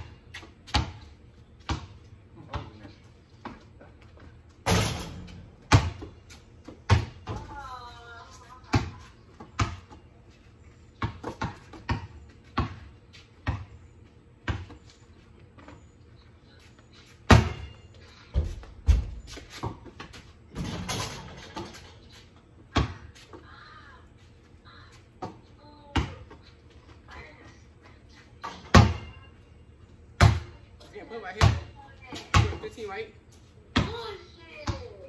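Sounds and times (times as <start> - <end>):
basketball bouncing on concrete: 0.3 - 7.7, 8.4 - 10.1, 11.0 - 13.8, 14.4 - 15.0, 17.3 - 21.8, 22.7 - 23.3, 25.2 - 26.5, 28.4 - 29.2, 30.2 - 30.6, 31.2 - 32.8, 33.7 - 35.0.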